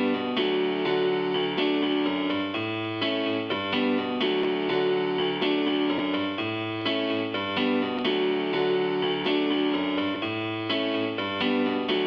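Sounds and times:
keyboard chords: 0.0s - 12.0s.

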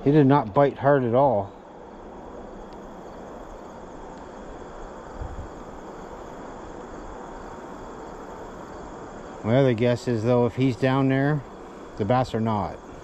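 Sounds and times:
faint high steady tones: 0.0s - 13.0s
outdoor background hiss: 0.0s - 13.0s
wind buffeting microphone: 2.3s - 7.5s.

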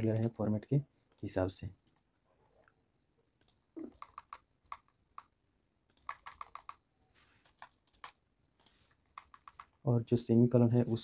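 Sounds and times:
computer keyboard clatter: 3.9s - 5.3s, 5.9s - 6.8s, 7.4s - 8.2s, 9.1s - 9.8s.

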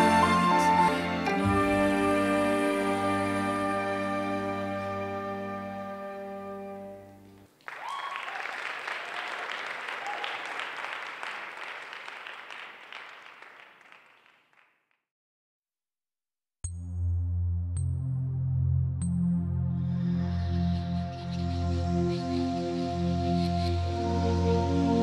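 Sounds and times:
music: 0.0s - 7.5s, 16.6s - 25.0s
audience applause: 7.6s - 14.8s.

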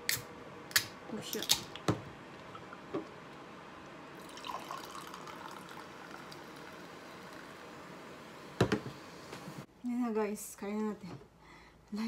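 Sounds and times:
fizzy drink pouring into cup: 4.2s - 7.6s.

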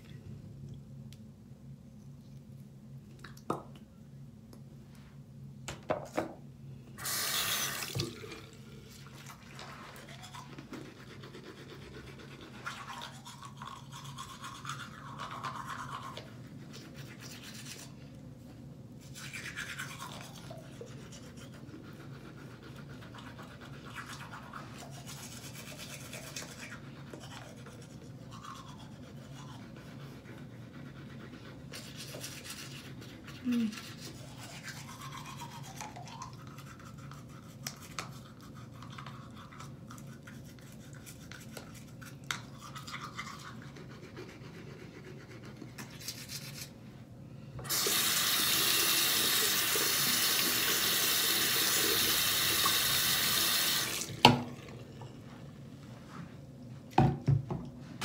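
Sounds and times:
toothbrush scrubbing teeth: 8.9s - 18.2s, 19.0s - 46.8s, 47.7s - 54.0s.

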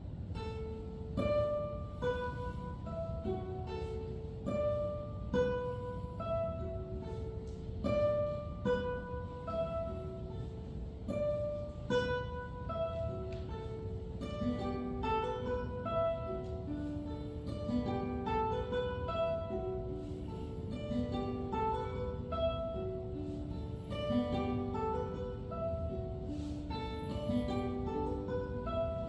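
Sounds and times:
classical guitars plucking: 0.0s - 29.0s.

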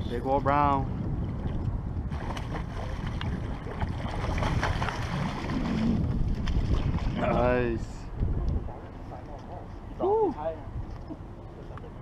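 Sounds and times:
fish thrashing and splashing water: 2.1s - 7.2s.

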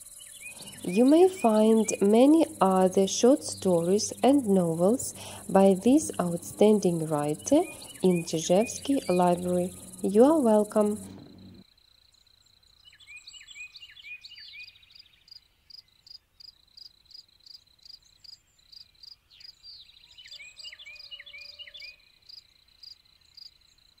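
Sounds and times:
crickets chirping: 0.0s - 11.6s
small bird chirping: 0.0s - 11.6s.

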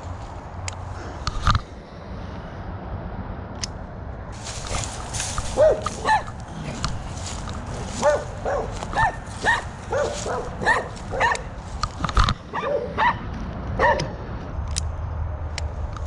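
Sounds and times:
dog barking high-pitched: 5.5s - 6.4s, 7.9s - 11.5s, 12.5s - 13.2s, 13.8s - 14.2s.

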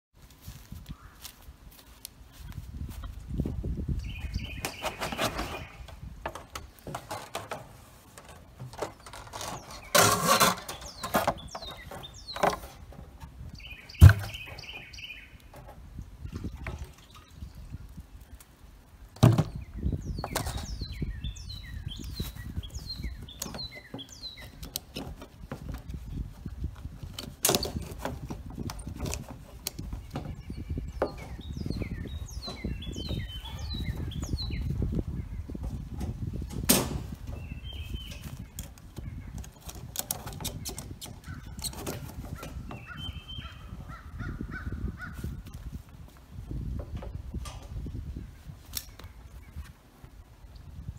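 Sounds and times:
birds chirping: 2.3s - 50.9s
plastic barrel knocking and clattering: 14.0s - 14.6s, 19.2s - 19.6s.

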